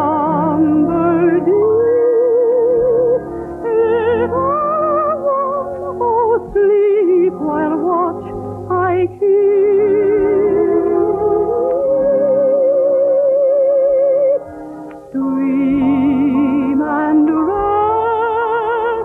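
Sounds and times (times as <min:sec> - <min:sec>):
soprano singing lullaby: 0:15.1 - 0:19.0.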